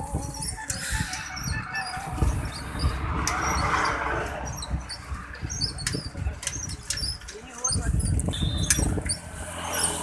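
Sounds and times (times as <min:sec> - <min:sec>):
truck passing on road: 0:00.7 - 0:06.9, 0:08.2 - 0:10.0.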